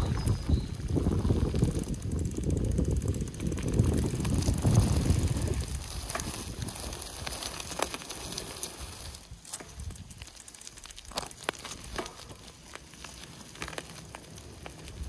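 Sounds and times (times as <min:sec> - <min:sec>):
wind rumble on microphone: 0:00.0 - 0:10.3, 0:14.3 - 0:15.0
bike tyre rolling noise: 0:00.0 - 0:15.0
light clicks and crackles: 0:05.6 - 0:15.0.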